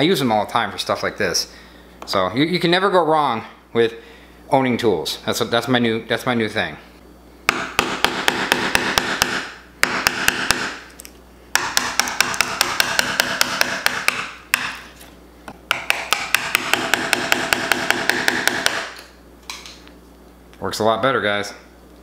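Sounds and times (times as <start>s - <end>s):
hammer striking chisel into wood: 7.5s - 10.8s, 11.5s - 14.8s, 15.7s - 19.0s.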